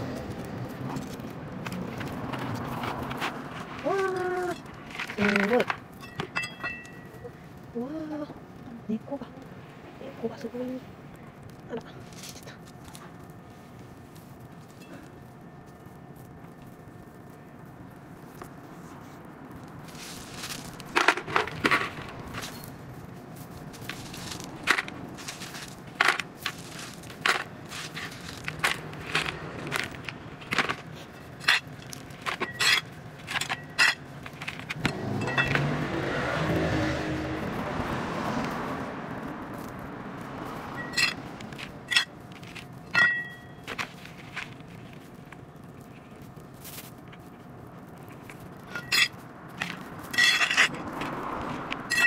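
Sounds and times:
soil crunching: 0:00.0 - 0:08.0, 0:10.5 - 0:52.0
rushing background noise: 0:00.0 - 0:52.0
plastic bag crinkling: 0:19.7 - 0:33.3.

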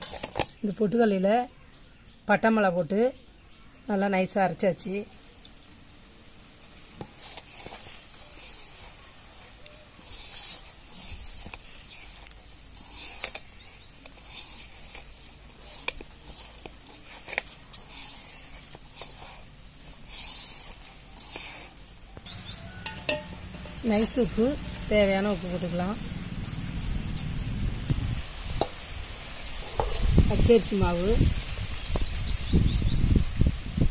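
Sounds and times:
hand mixing dry flour: 0:06.8 - 0:28.8
fingers clicking against metal bowl: 0:22.2 - 0:24.9.

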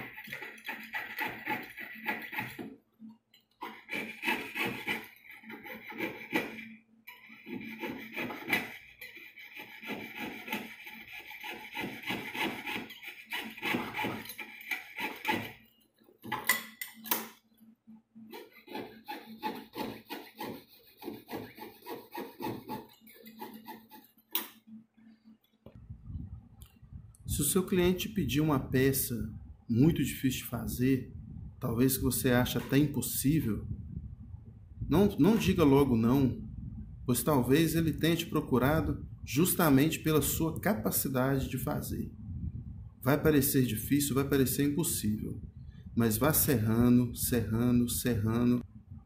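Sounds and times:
saw rasping through metal: 0:00.0 - 0:02.7, 0:03.6 - 0:15.6, 0:18.3 - 0:24.2.

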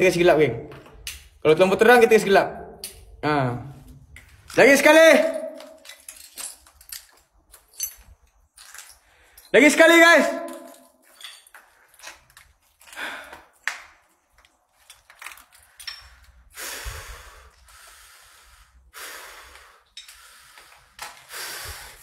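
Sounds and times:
man breathing hard: 0:12.8 - 0:13.6, 0:16.4 - 0:22.0.

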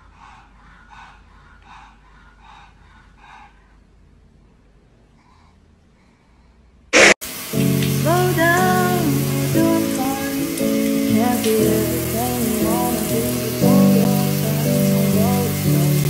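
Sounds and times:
dog breathing noisily: 0:00.0 - 0:03.9
short loud burst: 0:07.0 - 0:07.2
music: 0:07.5 - 0:16.0.

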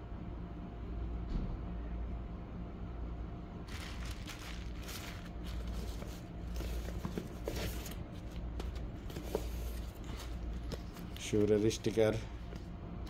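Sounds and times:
low steady hum: 0:00.0 - 0:13.0
packaging rustling and crinkling: 0:03.7 - 0:11.6.

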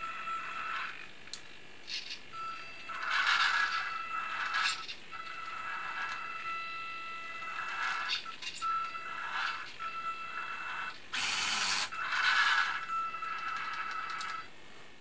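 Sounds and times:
electric motors whining: 0:00.0 - 0:14.6.

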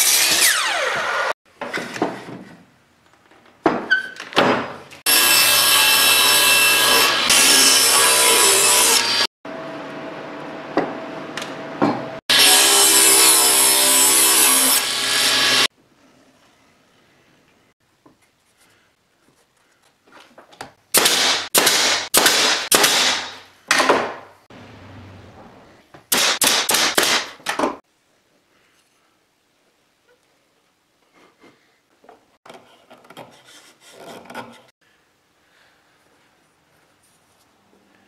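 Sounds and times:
table saw cutting wood: 0:00.0 - 0:01.4, 0:05.1 - 0:09.7, 0:12.3 - 0:15.7
table saw ripping a board: 0:00.0 - 0:02.0
pneumatic nailer firing: 0:21.0 - 0:24.1, 0:26.1 - 0:27.7.

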